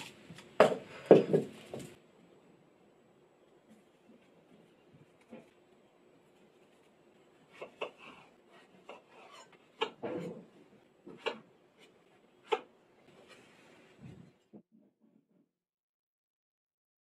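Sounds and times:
knife slicing and scraping: 0:07.4 - 0:10.5.

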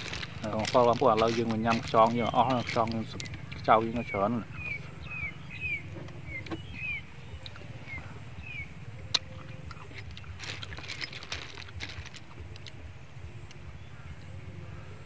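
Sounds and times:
snail shells clicking together: 0:00.0 - 0:04.2, 0:09.0 - 0:13.6
bird chirping: 0:00.0 - 0:15.0.

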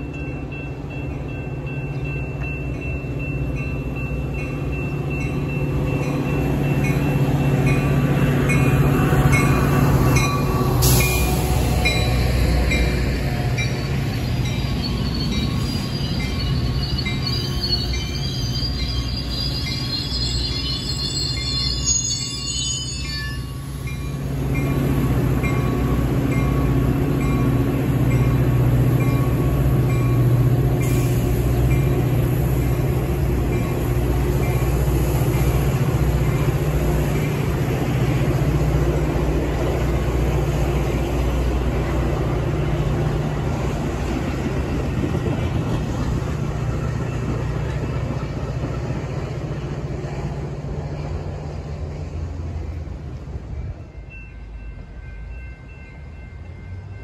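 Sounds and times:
diesel locomotive engine drone: 0:00.0 - 0:57.0
wheels rumbling on rail: 0:00.0 - 0:57.0
high wheel squeal: 0:10.3 - 0:24.1.

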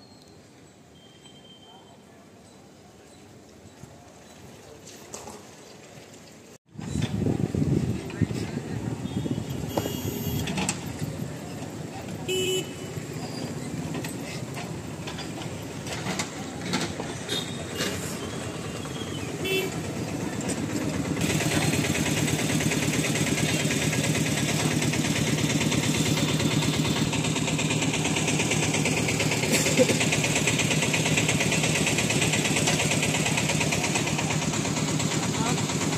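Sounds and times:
light traffic: 0:00.0 - 0:35.9
diesel engine running: 0:07.0 - 0:35.9
short horn toots: 0:09.1 - 0:10.6.

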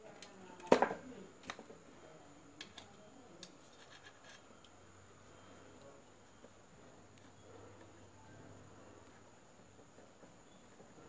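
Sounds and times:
light clicks of wires: 0:02.6 - 0:03.6
wires scratching: 0:03.5 - 0:04.5.

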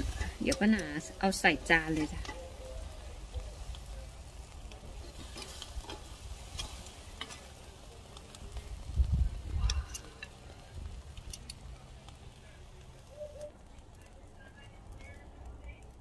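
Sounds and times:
steak sizzling on a grill: 0:00.0 - 0:16.0
metal tongs clicking: 0:05.1 - 0:07.5.

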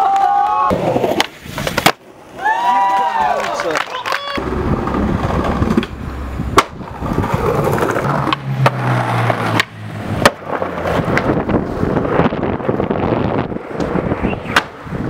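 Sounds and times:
skateboard wheels rolling: 0:00.0 - 0:15.0
skateboard clacks: 0:00.2 - 0:02.1, 0:02.8 - 0:11.6.

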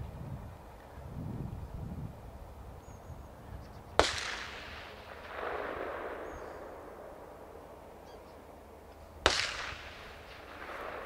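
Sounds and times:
distant gunshot with echo: 0:04.0 - 0:07.4, 0:09.2 - 0:11.0.

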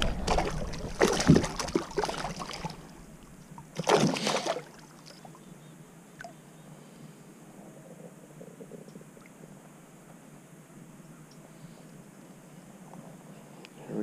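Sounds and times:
water splashing against a kayak: 0:00.0 - 0:03.1, 0:03.7 - 0:05.2
faint water lapping: 0:00.0 - 0:10.4.

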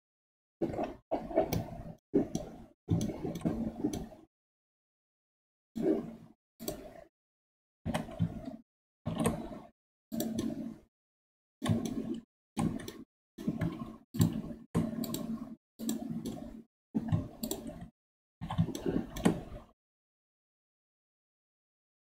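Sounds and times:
computer mouse and keyboard clicking: 0:00.6 - 0:04.2, 0:07.9 - 0:09.6, 0:10.2 - 0:10.8, 0:11.6 - 0:19.7.

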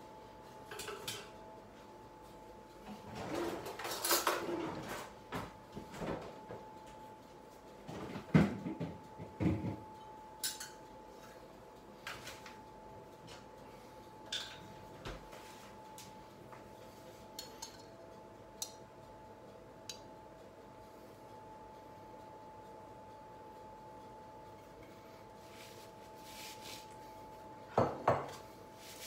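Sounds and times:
faint steady hum: 0:00.0 - 0:29.0
dishes and utensils clattering: 0:00.7 - 0:01.3, 0:02.9 - 0:05.1, 0:10.4 - 0:11.4, 0:14.3 - 0:14.7, 0:17.4 - 0:17.9.

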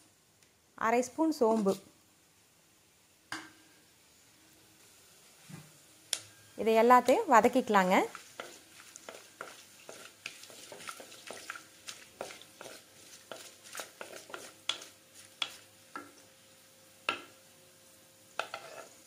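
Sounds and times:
light sizzle of oil: 0:00.0 - 0:19.0
utensil scraping clay pot: 0:08.1 - 0:16.1, 0:18.4 - 0:19.0.

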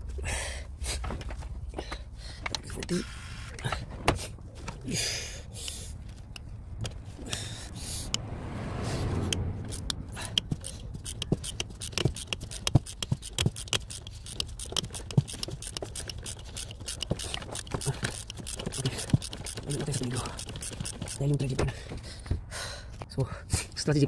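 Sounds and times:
low rumble: 0:06.5 - 0:11.1
metal tool clicks and clinks: 0:09.7 - 0:21.2.

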